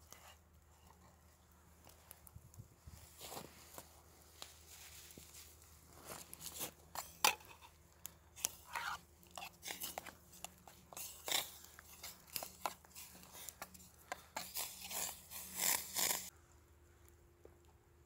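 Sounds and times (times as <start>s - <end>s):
spoon scraping metal pot: 8.4s - 16.3s.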